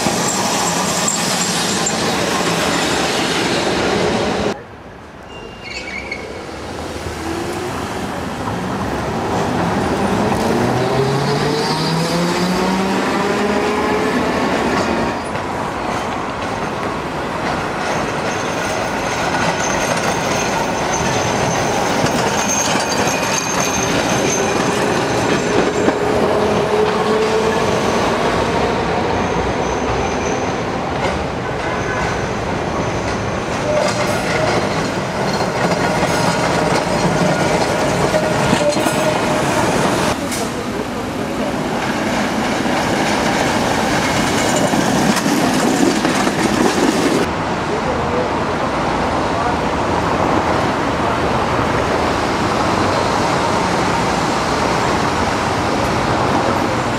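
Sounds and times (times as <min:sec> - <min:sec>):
streetcar wheel squeal: 0:00.0 - 0:03.5, 0:05.2 - 0:06.6, 0:17.9 - 0:28.2, 0:29.1 - 0:30.7, 0:31.6 - 0:40.6
wheels clacking over rail joints: 0:33.0 - 0:40.6.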